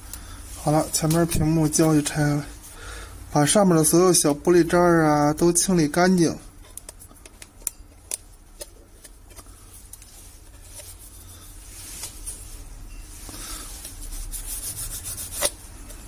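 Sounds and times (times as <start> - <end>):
soft rubbing: 9.3 - 16.0
faint scratching: 10.1 - 16.0.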